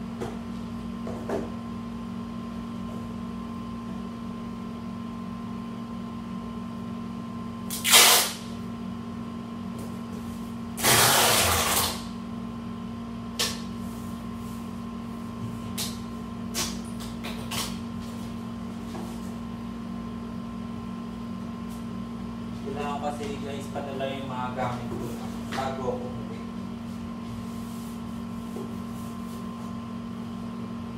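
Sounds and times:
steady low hum: 0:00.0 - 0:30.9
packing tape ripping off roll: 0:07.7 - 0:08.5, 0:10.8 - 0:12.1.

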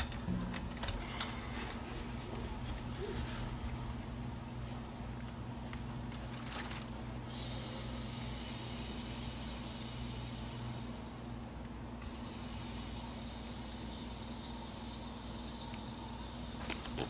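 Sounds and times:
steady low hum: 0:00.0 - 0:17.0
gas hissing through line: 0:02.8 - 0:03.9, 0:07.2 - 0:17.0.

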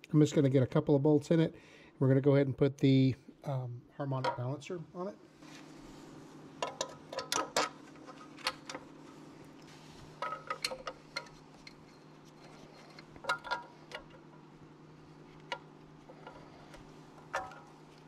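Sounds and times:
steady low hum: 0:00.0 - 0:18.0
metal socket and bolts clinking: 0:12.9 - 0:14.2.

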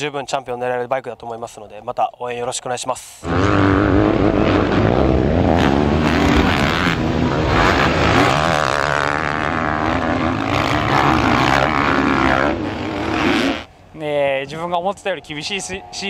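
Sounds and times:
dirt bike engines revving: 0:03.2 - 0:16.0.

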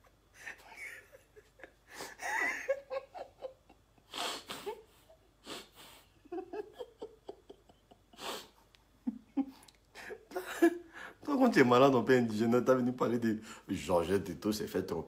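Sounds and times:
man laughing breathily: 0:00.2 - 0:11.2.

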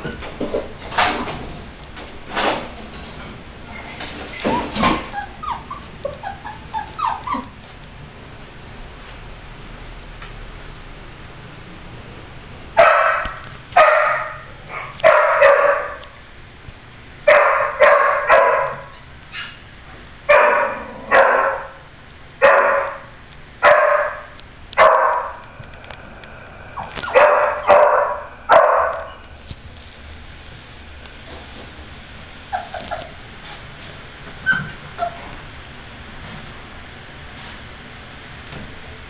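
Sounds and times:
puppy barking: 0:05.1 - 0:07.5, 0:12.8 - 0:16.1, 0:17.3 - 0:19.6, 0:20.3 - 0:21.8, 0:22.4 - 0:25.4, 0:26.8 - 0:29.2.

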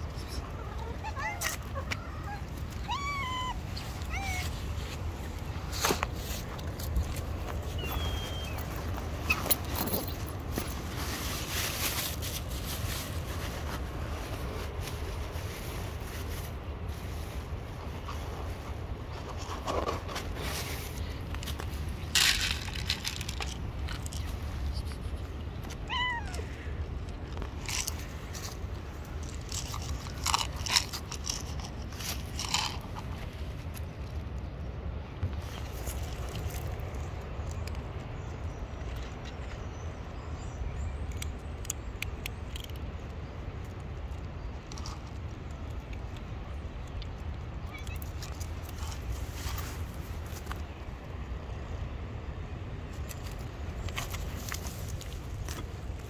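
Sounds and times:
small clicks and rustles: 0:00.1 - 0:34.5, 0:35.2 - 0:40.0, 0:41.0 - 0:50.8, 0:52.9 - 0:56.0
cat crunching dry kibble: 0:21.0 - 0:34.2, 0:41.0 - 0:50.8.

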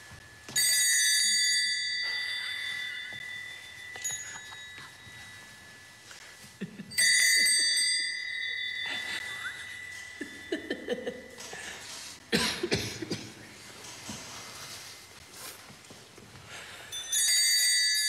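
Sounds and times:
altar bell ringing: 0:00.0 - 0:12.2, 0:16.5 - 0:18.0
stifled giggling: 0:06.2 - 0:08.0, 0:08.9 - 0:12.1.

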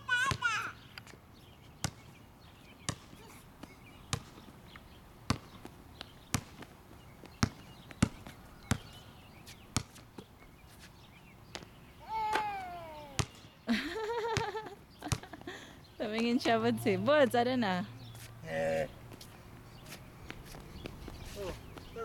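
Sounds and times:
high-pitched voice calling out: 0:00.0 - 0:00.7, 0:12.0 - 0:13.2
basketball bouncing on hard court: 0:01.8 - 0:02.1, 0:02.9 - 0:03.2, 0:04.0 - 0:04.5, 0:05.3 - 0:06.7, 0:07.3 - 0:09.0, 0:09.7 - 0:10.0, 0:13.2 - 0:13.5, 0:14.2 - 0:15.4.

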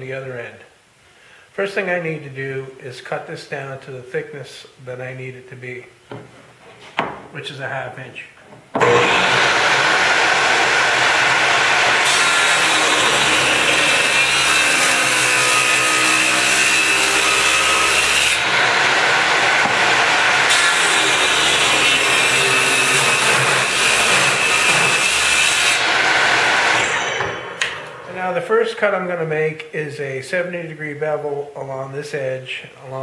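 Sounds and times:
table saw ripping wood: 0:08.8 - 0:27.9.

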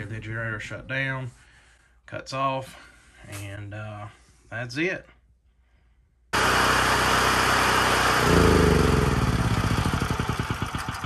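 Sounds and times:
generator engine running and stopping: 0:06.4 - 0:11.0.

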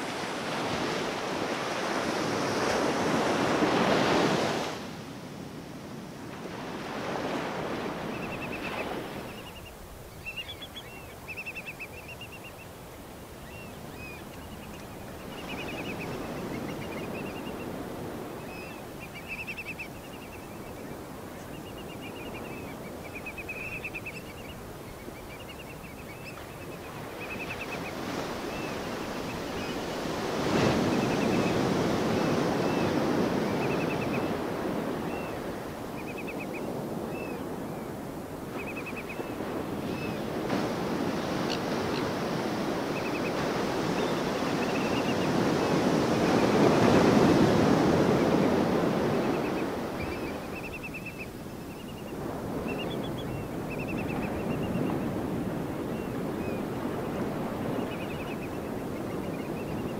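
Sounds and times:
ocean surf breaking: 0:00.0 - 0:10.0, 0:39.3 - 0:59.0
bird chirping trills: 0:08.2 - 0:12.7.

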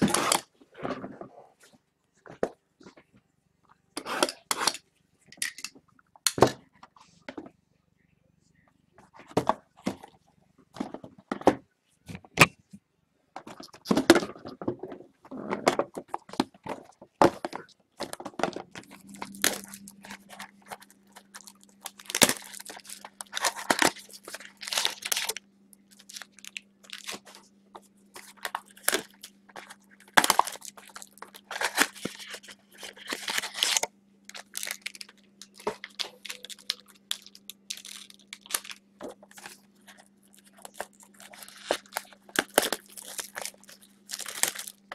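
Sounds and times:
wrapper tearing and crinkling: 0:18.8 - 0:27.4, 0:28.2 - 0:44.9.

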